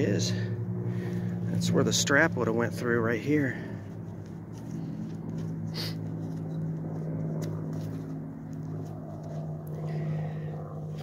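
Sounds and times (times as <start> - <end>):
low hum with overtones: 0.0 - 11.0
gloved hand scraping dirt: 3.5 - 10.1.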